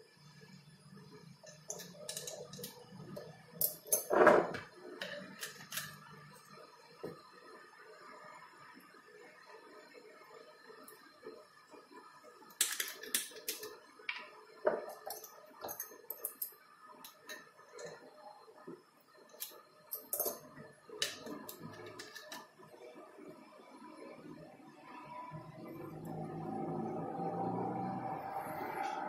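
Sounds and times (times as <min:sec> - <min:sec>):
glass and plastic labware clicking: 0:01.5 - 0:02.8.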